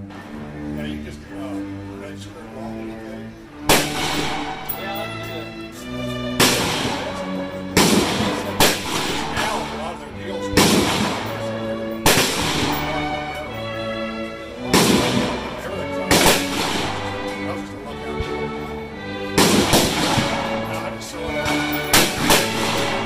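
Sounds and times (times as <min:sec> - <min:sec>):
background music with held notes: 0:00.0 - 0:23.0
gunshots: 0:03.7 - 0:04.8, 0:06.4 - 0:09.7, 0:10.6 - 0:13.4, 0:14.7 - 0:15.5, 0:16.1 - 0:17.2, 0:19.4 - 0:20.6, 0:21.4 - 0:23.0.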